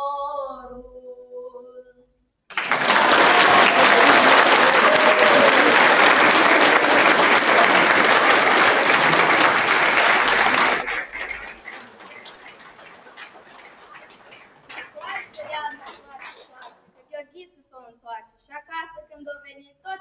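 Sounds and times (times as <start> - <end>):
audience applauding: 2.5 - 16.9
scattered claps and clicks: 2.5 - 16.9.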